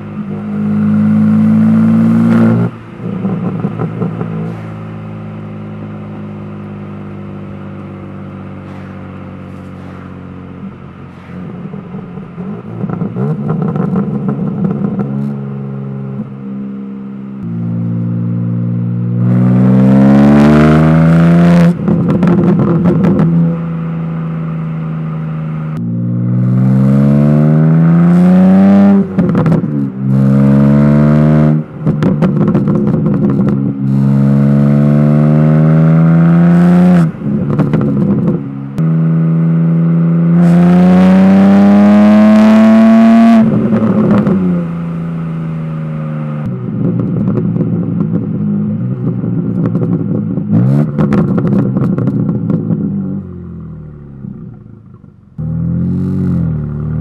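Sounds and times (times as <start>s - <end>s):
car engine accelerating: 0.0s - 57.0s
exhaust cracks: 2.3s - 5.1s, 8.6s - 15.4s, 31.6s - 34.1s, 46.2s - 57.0s.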